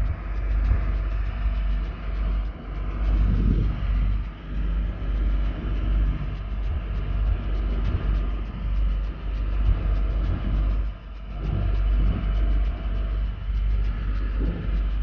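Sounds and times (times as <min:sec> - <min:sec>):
boat engine rumbling: 0:00.0 - 0:15.0
wind on microphone: 0:00.0 - 0:15.0.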